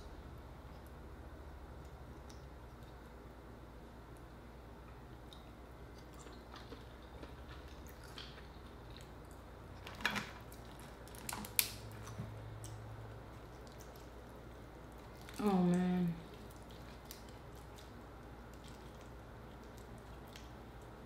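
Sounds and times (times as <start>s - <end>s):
soft chewing and squishing: 0.2s - 21.0s
crab shell cracking: 9.9s - 12.1s, 16.3s - 20.6s.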